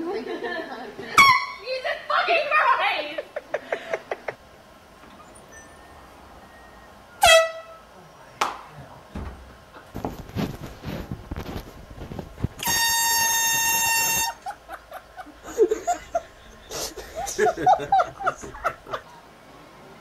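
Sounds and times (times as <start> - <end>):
sharp squeak dropping in pitch: 5.2 - 7.6
air horn blast: 7.2 - 7.9, 12.6 - 14.4
knocks and shuffling: 9.2 - 12.8.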